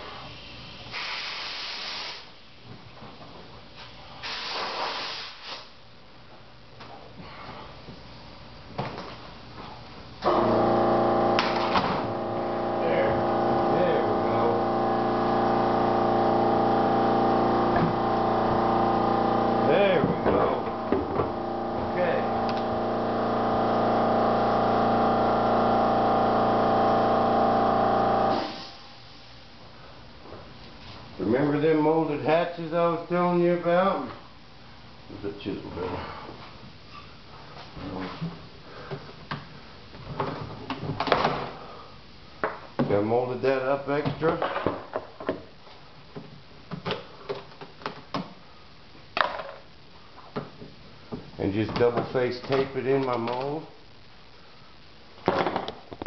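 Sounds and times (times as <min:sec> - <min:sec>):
electric motor humming: 0:10.3 - 0:28.4.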